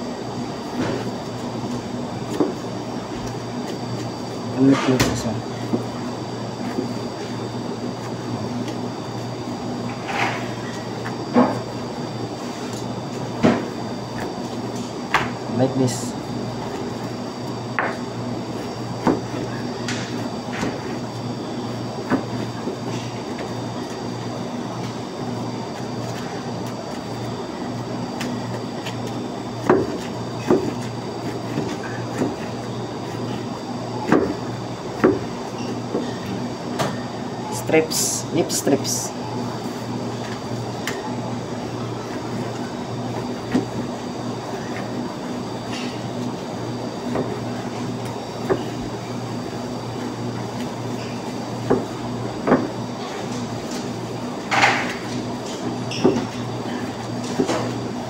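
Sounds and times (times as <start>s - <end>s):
steady background hum: 0.0s - 58.0s.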